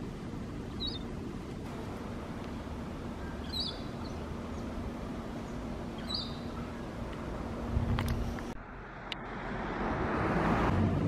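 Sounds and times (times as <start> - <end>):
low background noise: 0.0 - 9.2
bird chirping: 0.6 - 7.7.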